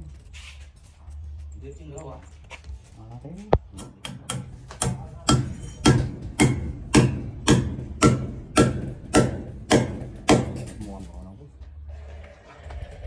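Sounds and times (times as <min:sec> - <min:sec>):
hammer striking brick pillar: 0:03.6 - 0:11.0.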